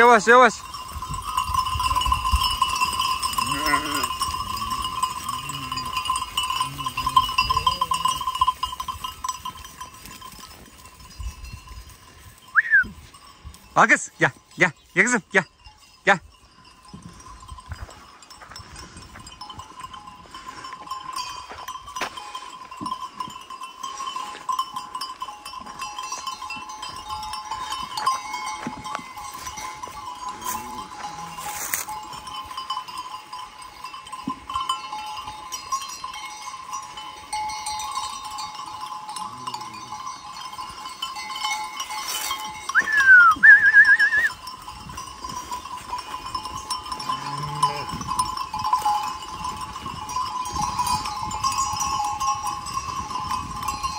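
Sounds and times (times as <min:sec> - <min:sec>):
sheep bells ringing: 0:00.0 - 0:53.9
sheep bleating: 0:03.3 - 0:06.0.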